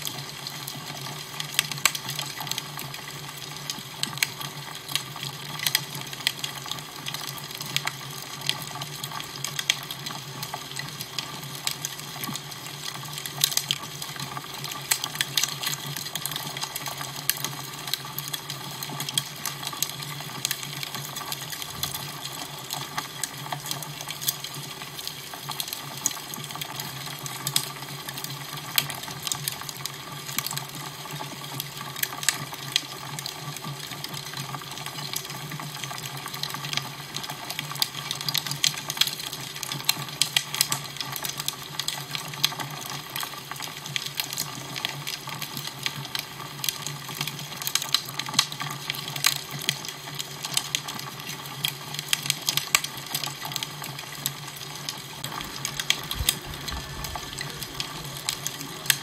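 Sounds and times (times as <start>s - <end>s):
fire crackling and popping: 0.0s - 59.0s
steady hiss: 55.2s - 59.0s
low hum: 55.3s - 59.0s.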